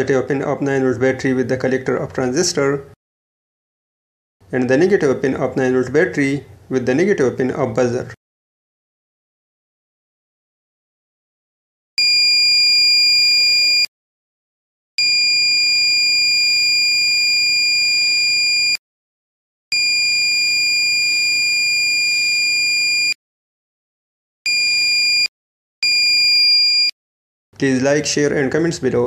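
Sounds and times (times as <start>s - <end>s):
high-pitched alarm buzzer: 12.0s - 13.9s, 15.0s - 18.8s, 19.8s - 23.2s, 24.5s - 26.9s.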